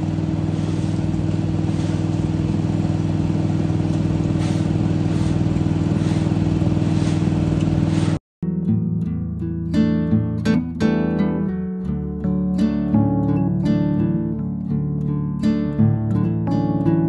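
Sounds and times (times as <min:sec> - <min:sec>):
leaf vacuum engine drone: 0:00.0 - 0:08.2
broom scraping on asphalt: 0:00.4 - 0:02.7, 0:03.8 - 0:08.2.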